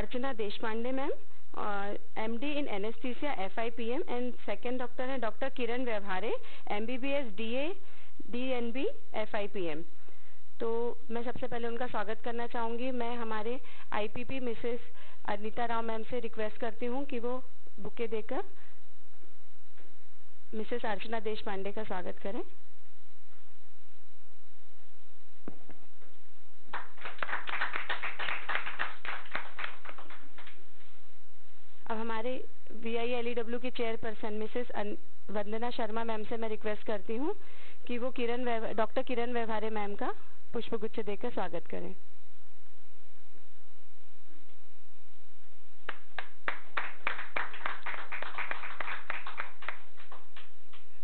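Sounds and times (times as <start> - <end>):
audience clapping: 26.7 - 30.6, 45.9 - 50.9.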